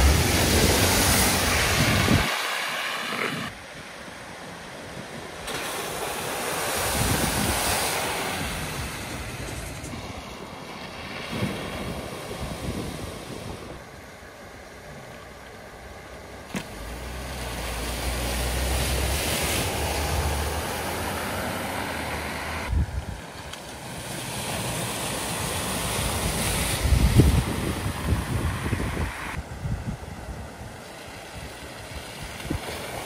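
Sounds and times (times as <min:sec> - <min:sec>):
car engines running: 0:00.0 - 0:03.5, 0:13.8 - 0:22.7
tyres hissing through water spray: 0:00.0 - 0:03.6, 0:05.3 - 0:13.8, 0:16.7 - 0:22.7, 0:23.8 - 0:29.4
water flowing across road: 0:00.0 - 0:33.0.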